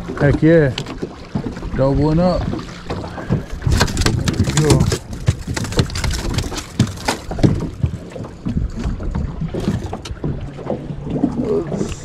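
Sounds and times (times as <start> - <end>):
fish flopping on metal boat floor: 2.5 - 10.8.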